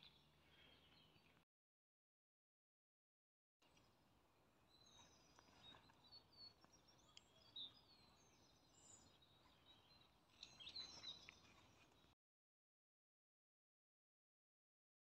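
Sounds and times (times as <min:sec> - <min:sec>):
songbirds chirping and whistling: 0:00.0 - 0:01.4, 0:04.6 - 0:12.2.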